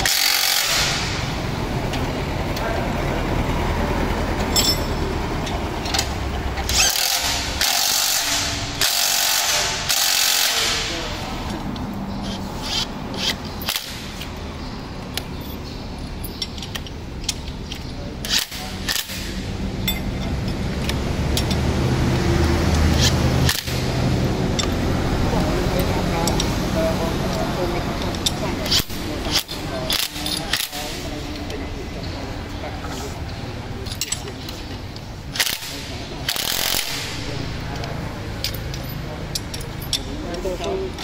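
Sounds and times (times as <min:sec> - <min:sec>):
impact wrench hammering on bolts: 0:00.0 - 0:02.0, 0:04.4 - 0:14.3, 0:15.1 - 0:21.9, 0:22.6 - 0:26.6, 0:28.0 - 0:31.0, 0:33.8 - 0:41.0
sharp metallic clicks: 0:00.0 - 0:02.7, 0:04.3 - 0:32.1, 0:33.6 - 0:41.0.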